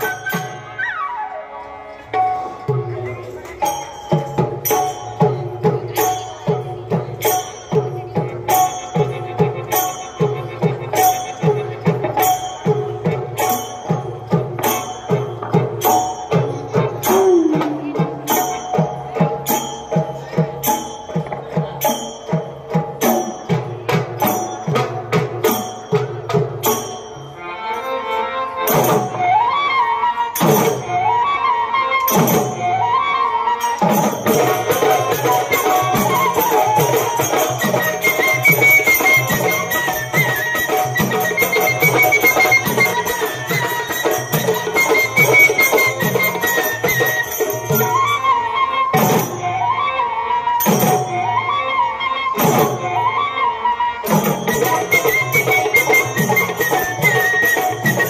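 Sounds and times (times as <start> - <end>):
flute melody: 0.0 - 6.4, 8.7 - 20.4, 26.7 - 58.0
folk drums beating: 2.0 - 27.5, 28.6 - 29.6, 33.8 - 49.8, 50.6 - 51.5, 52.4 - 53.2, 54.0 - 58.0.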